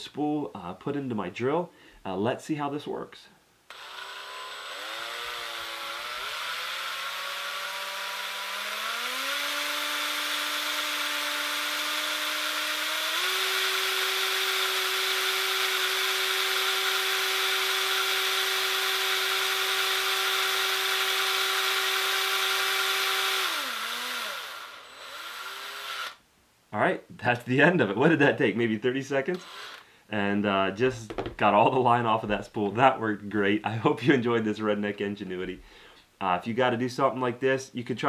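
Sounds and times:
cordless drill motor whining: 3.7 - 26.2, 29.3 - 29.9.

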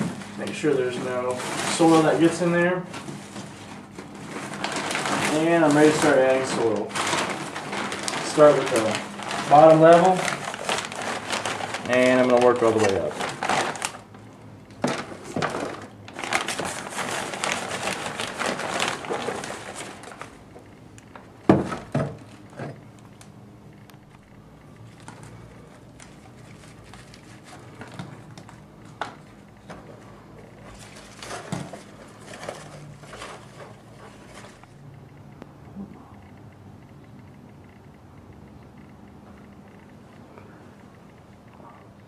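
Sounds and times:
plastic sheet crinkling: 0.0 - 20.5, 24.9 - 34.8
scattered clicks and rustles: 0.0 - 42.0.

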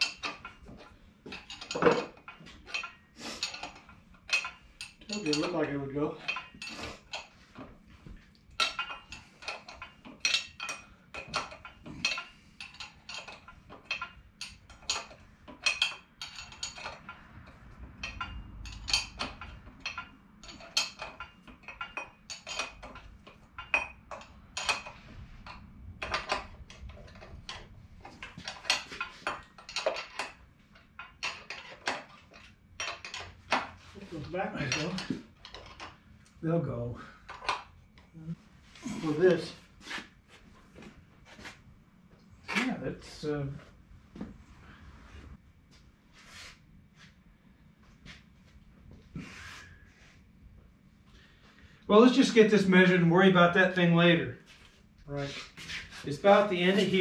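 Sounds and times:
wrench clinking on metal bolts: 0.0 - 7.8, 8.4 - 36.1.

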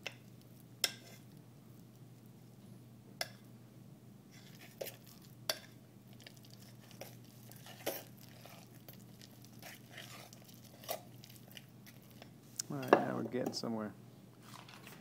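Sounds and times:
fork scraping dough in mug: 4.4 - 5.2, 6.6 - 8.7, 9.6 - 11.1.

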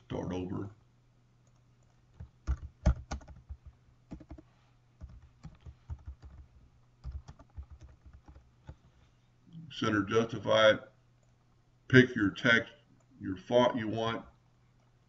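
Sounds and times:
faint low hum: 0.0 - 15.0
computer keyboard typing: 1.4 - 8.9.

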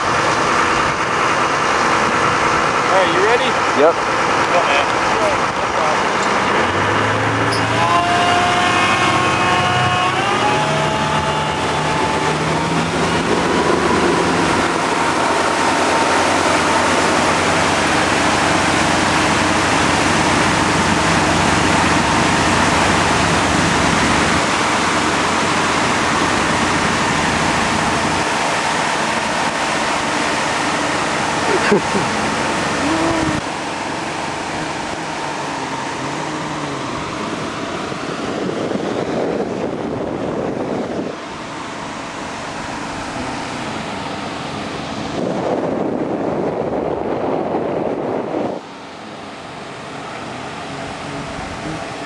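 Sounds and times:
motorboat engine throttling up: 0.0 - 8.0, 10.4 - 52.0
wind rushing on microphone: 11.0 - 29.7, 32.7 - 33.6, 34.3 - 52.0.

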